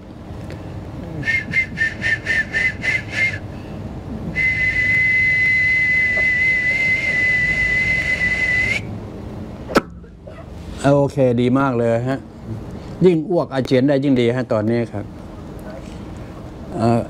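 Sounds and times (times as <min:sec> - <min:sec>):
high-pitched whistle tones: 0:01.2 - 0:03.4, 0:04.4 - 0:08.9.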